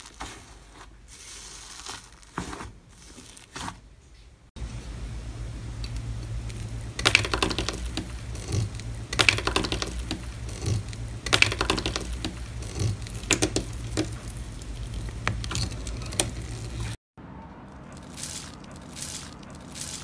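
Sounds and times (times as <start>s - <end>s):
steady low hum: 4.6s - 20.0s
metal pick crackling through foil: 18.0s - 20.0s.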